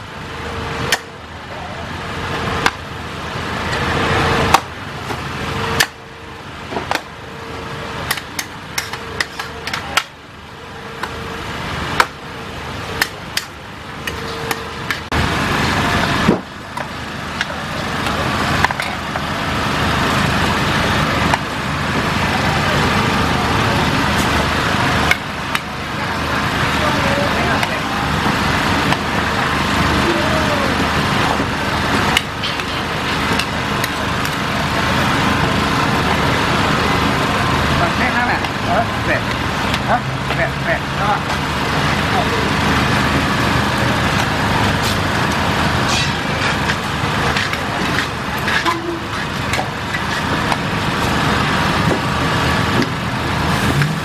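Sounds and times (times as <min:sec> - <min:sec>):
metal spatulas scraping a wok: 0:45.8 - 0:46.3.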